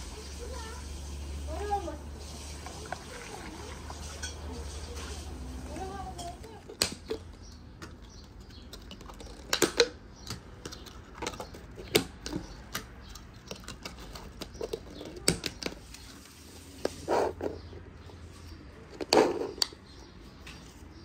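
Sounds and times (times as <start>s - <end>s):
plastic lids snapping onto cups: 6.2s - 15.8s.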